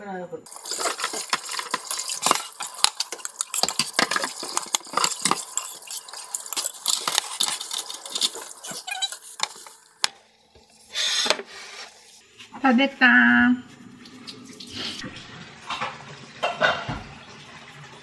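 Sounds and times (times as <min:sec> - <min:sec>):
utensils clinking and scraping dishes: 0:00.5 - 0:10.1.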